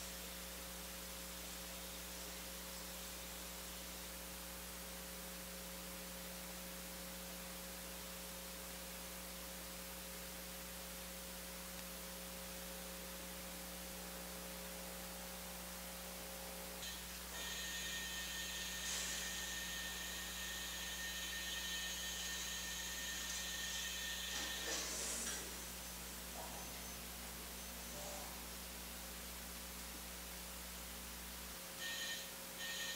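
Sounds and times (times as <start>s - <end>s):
electrical hum: 0.0s - 32.9s
high whining tones: 16.8s - 28.5s
faint hiss: 24.4s - 28.6s.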